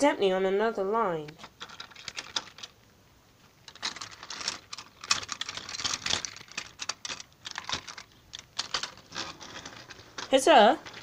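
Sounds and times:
plastic toy train clicking and rattling: 1.4s - 2.8s, 3.7s - 11.0s.

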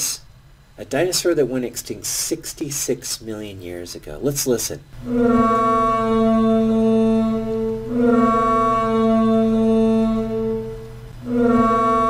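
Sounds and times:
long brass-like honks: 5.0s - 12.0s.

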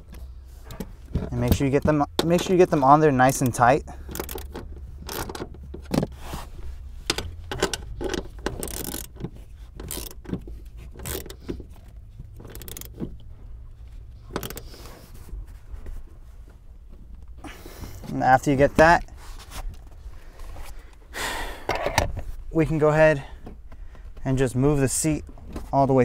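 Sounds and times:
ratchet clicking: 3.4s - 5.7s, 7.1s - 11.8s, 12.4s - 13.0s, 14.3s - 14.9s.

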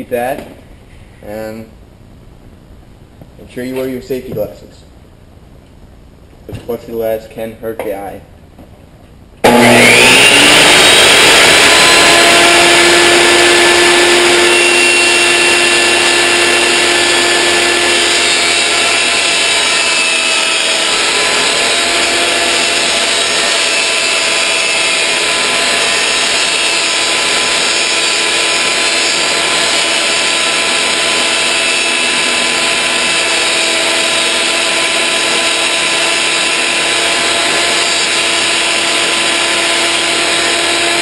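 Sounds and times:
table saw cutting plastic: 9.4s - 41.0s.

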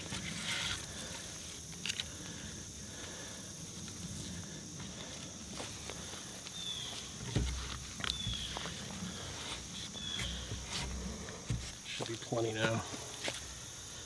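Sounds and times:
cord weaving around wooden poles: 0.0s - 14.0s
bird chirps: 6.5s - 7.1s, 8.0s - 8.7s, 9.9s - 10.6s.

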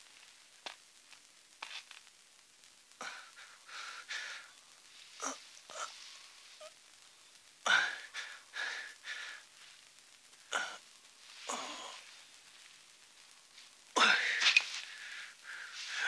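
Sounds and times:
man wheezing and groaning: 5.2s - 6.0s, 7.6s - 9.4s, 10.5s - 10.8s, 11.5s - 12.1s, 14.0s - 16.0s.

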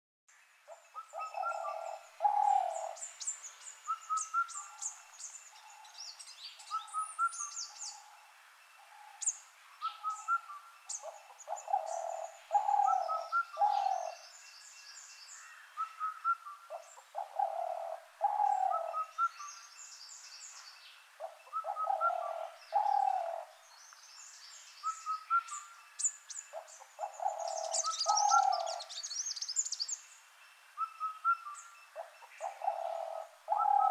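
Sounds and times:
high bird chirps and trills: 0.7s - 8.2s, 8.8s - 30.2s
low bird call: 8.8s - 14.3s, 20.5s - 23.6s, 26.5s - 29.7s, 30.8s - 33.9s.

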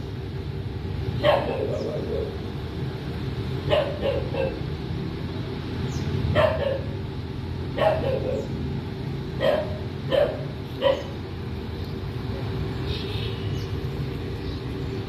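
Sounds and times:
dog barking: 1.2s - 2.4s, 3.7s - 4.6s, 6.3s - 7.0s, 7.8s - 8.6s, 9.4s - 11.2s.

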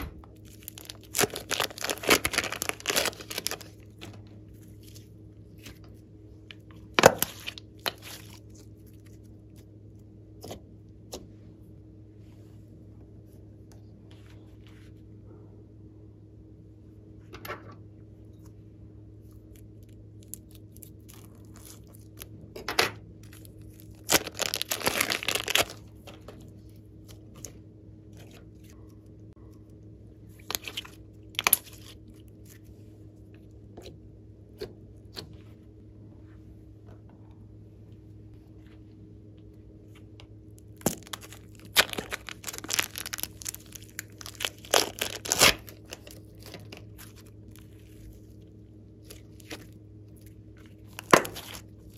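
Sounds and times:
plastic bags crinkling and tearing: 0.4s - 3.8s, 23.3s - 25.8s, 40.8s - 48.3s, 49.0s - 51.9s.

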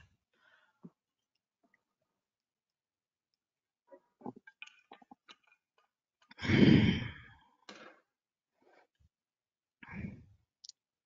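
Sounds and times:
person sighing heavily: 6.4s - 7.4s.

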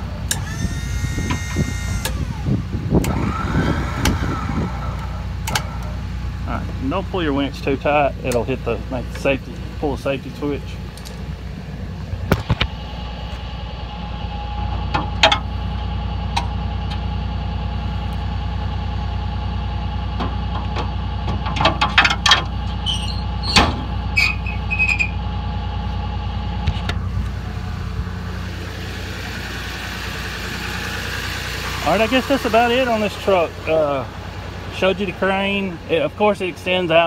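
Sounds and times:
diesel engine idling: 0.0s - 37.0s
brief high squeaks: 22.8s - 25.2s.

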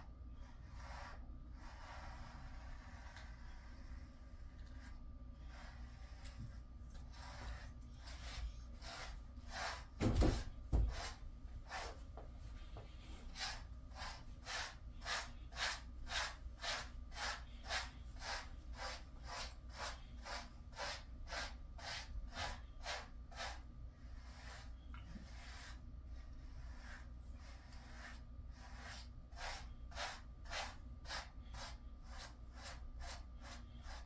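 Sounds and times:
brush rasping through dog coat: 0.4s - 34.0s.

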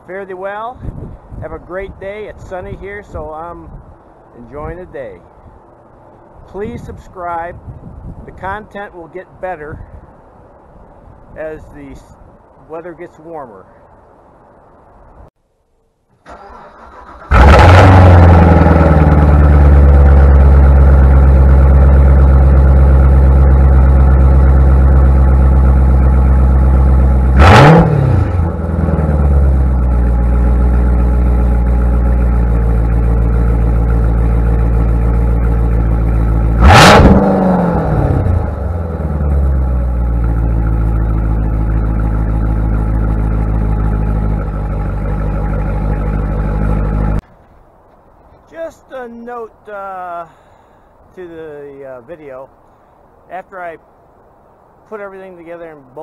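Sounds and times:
car engine idling: 16.2s - 47.2s
engine revving: 16.3s - 47.2s.

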